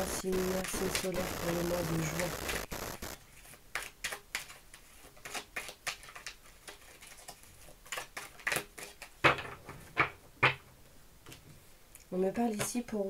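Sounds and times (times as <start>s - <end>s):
cards being shuffled: 0.0s - 9.2s.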